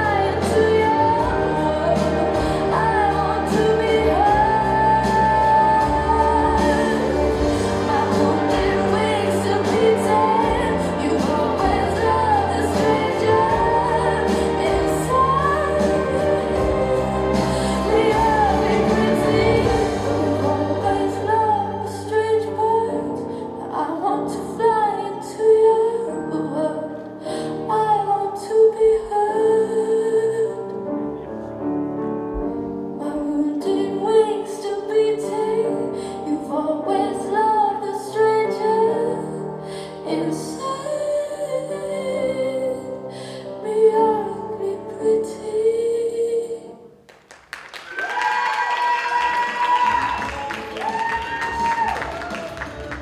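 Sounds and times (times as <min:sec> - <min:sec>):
instrumental accompaniment: 0:00.0 - 0:25.1
woman singing slow melody: 0:00.0 - 0:30.8, 0:33.0 - 0:46.8.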